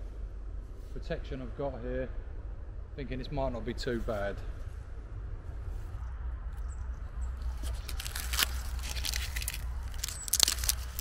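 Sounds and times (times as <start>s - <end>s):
low microphone rumble: 0.0s - 11.0s
footsteps crunching through leaves: 7.4s - 11.0s
twigs snapping: 7.4s - 11.0s.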